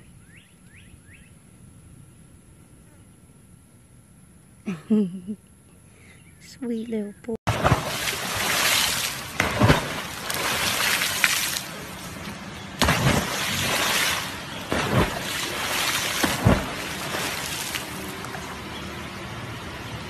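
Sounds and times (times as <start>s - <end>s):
water rushing against boat hull: 7.5s - 19.2s.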